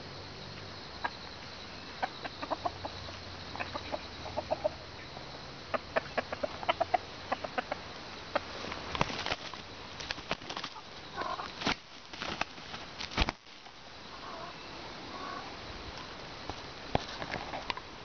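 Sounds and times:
rooster clucking: 0:02.0 - 0:09.5, 0:10.6 - 0:11.6
wing-flapping: 0:08.3 - 0:13.7.

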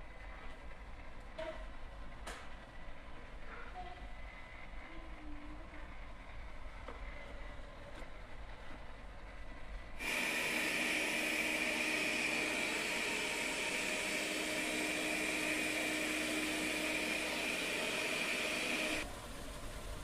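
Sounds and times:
robot vacuum fan whine: 0:10.0 - 0:19.1.

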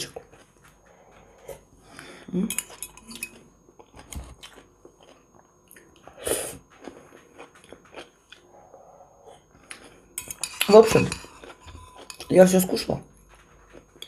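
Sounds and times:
person chewing: 0:00.1 - 0:12.4
fork clinking and scraping bowl: 0:02.5 - 0:03.4, 0:10.2 - 0:14.0.

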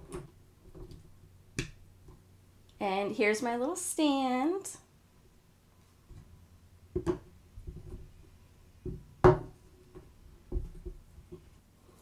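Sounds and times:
tablet knocking onto stand: 0:08.9 - 0:09.6.

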